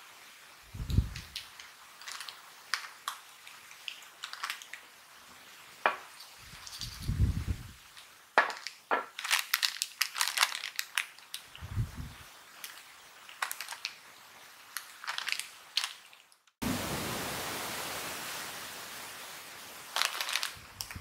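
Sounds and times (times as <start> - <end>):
plastic chip bag crinkling: 1.2 - 4.9, 7.9 - 11.6, 12.5 - 14.0, 14.6 - 16.5, 19.9 - 21.0.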